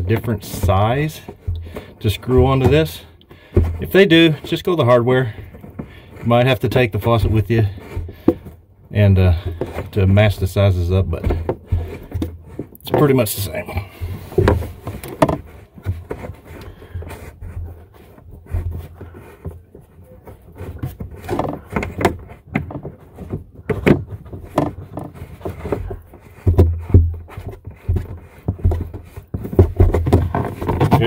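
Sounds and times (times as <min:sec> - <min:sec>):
plastic nut scraping on thread: 0:00.0 - 0:31.0.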